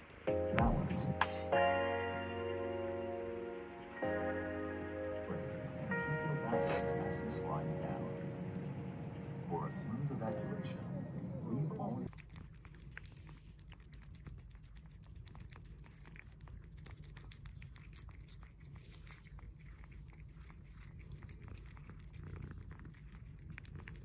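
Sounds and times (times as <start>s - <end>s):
cat licking and smacking: 5.3s - 9.4s, 11.5s - 24.0s.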